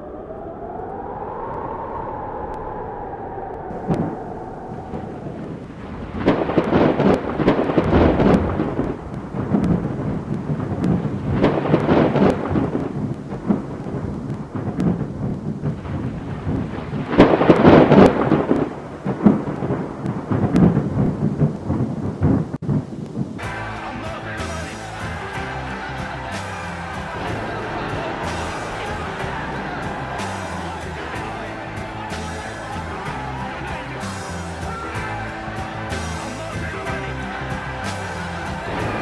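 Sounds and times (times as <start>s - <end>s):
thunder rolling and crackling: 0.0s - 39.0s
rain hissing: 3.6s - 39.0s.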